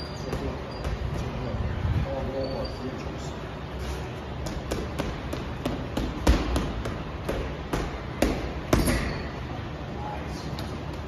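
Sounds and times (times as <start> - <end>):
gloves punching heavy bag: 4.5 - 9.2.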